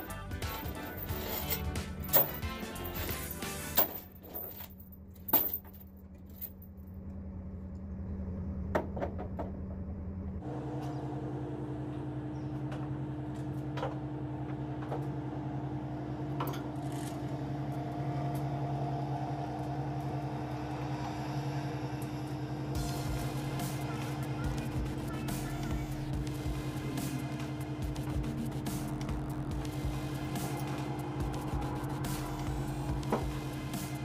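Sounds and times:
metal chains clinking: 0.0s - 6.8s
engine idling hum: 0.0s - 34.0s.

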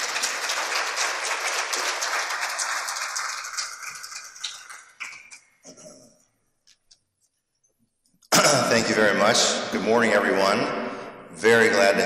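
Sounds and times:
audience applause: 0.0s - 5.4s.

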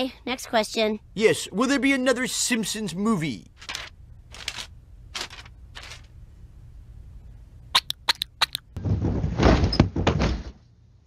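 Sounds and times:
squeaky cartoon clicks: 7.8s - 8.8s.

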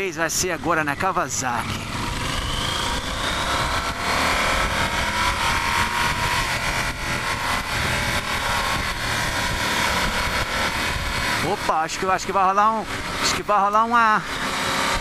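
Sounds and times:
motorcycle engine running: 0.0s - 15.0s
wind noise: 1.8s - 11.7s.

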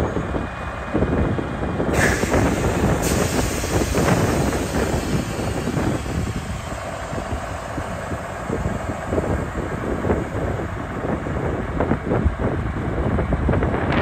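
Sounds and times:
diesel truck engine running: 0.0s - 14.0s.

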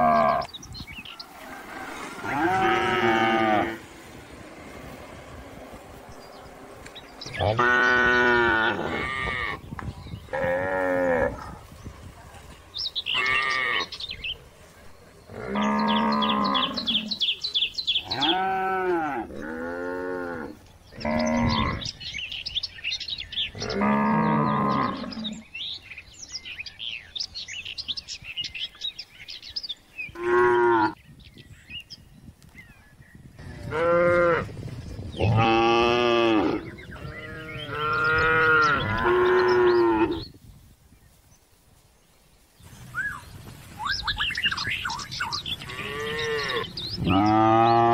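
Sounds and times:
cattle mooing: 0.0s - 0.5s, 1.4s - 3.8s, 7.2s - 9.6s, 15.3s - 17.1s, 23.6s - 25.4s, 35.2s - 40.2s, 45.6s - 47.9s
birds chirping: 0.0s - 47.9s.

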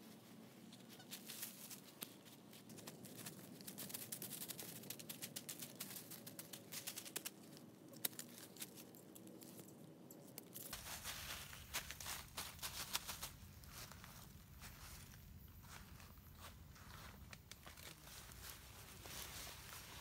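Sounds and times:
dry leaves rustling and crackling: 0.9s - 9.6s, 10.5s - 20.0s.

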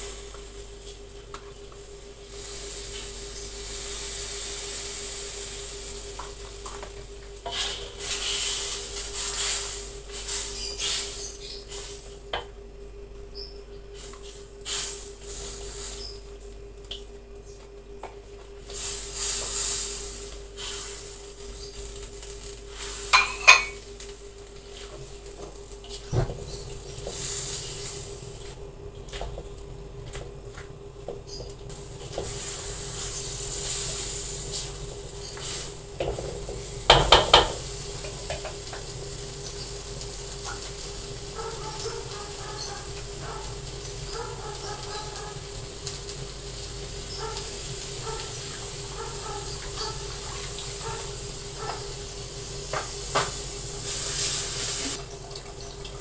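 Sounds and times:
food sizzling: 0.0s - 12.4s, 14.0s - 16.3s, 18.6s - 29.4s, 31.3s - 56.0s
steady hum: 0.0s - 55.1s
loud hiss: 2.2s - 6.2s, 53.0s - 55.0s
spatula scraping a wok: 7.4s - 11.9s
spatula knocking against wok: 36.9s - 37.6s.

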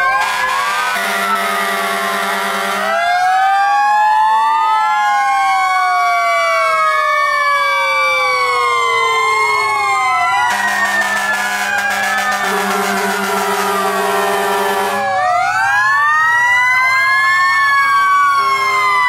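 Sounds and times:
fire truck sirens wailing: 0.0s - 19.0s
steady horn blast: 0.2s - 3.0s, 10.5s - 15.1s.

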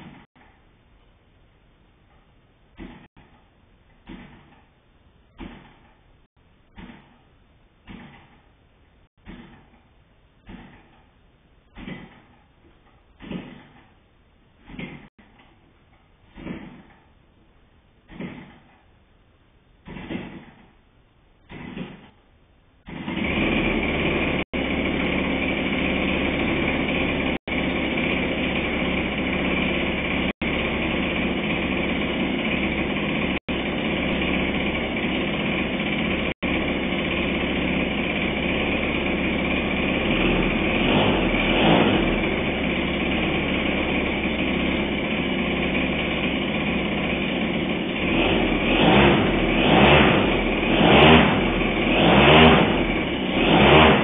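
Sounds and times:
model engine running: 22.9s - 54.0s.

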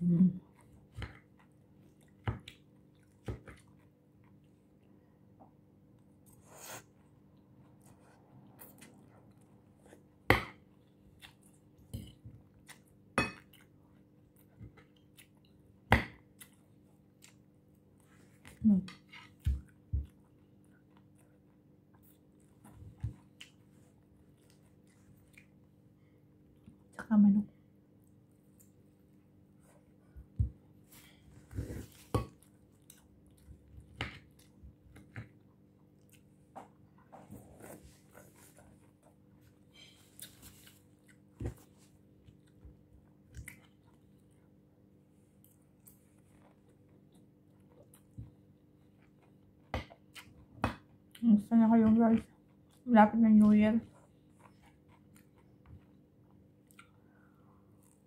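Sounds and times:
chewing crisp salad: 6.0s - 25.8s, 31.8s - 51.3s, 53.8s - 58.0s.

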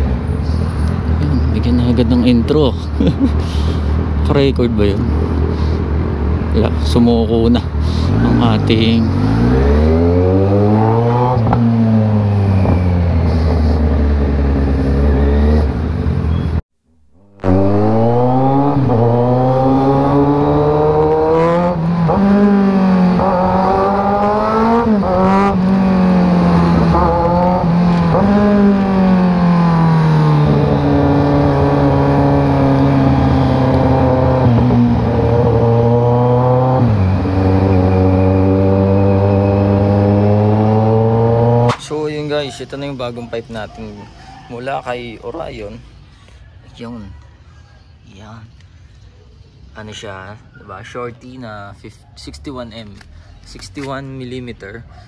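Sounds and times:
motorcycle engine revving: 3.4s - 16.6s, 17.2s - 41.9s.

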